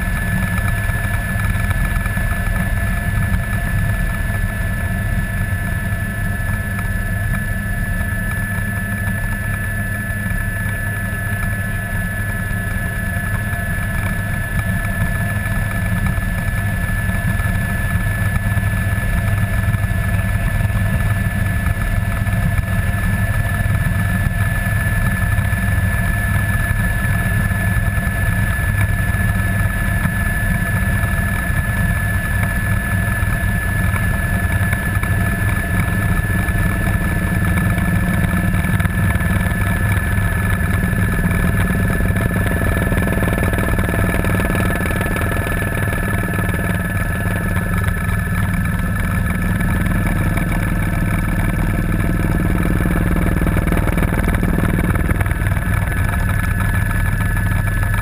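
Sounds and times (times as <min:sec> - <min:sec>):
helicopter engine and rotor whine: 0:00.0 - 0:58.0.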